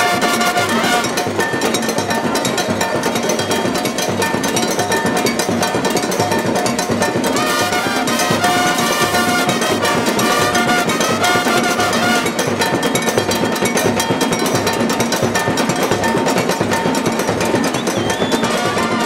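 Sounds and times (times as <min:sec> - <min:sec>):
trumpets playing a melody: 0:00.0 - 0:01.3, 0:07.3 - 0:12.4, 0:18.5 - 0:19.0
drums pounding a driving rhythm: 0:00.0 - 0:19.0.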